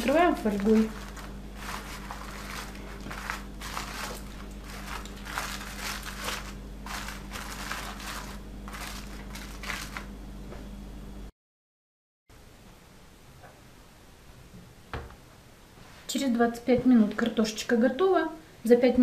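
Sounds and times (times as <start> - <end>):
aluminium foil crinkling: 0.0 - 10.1.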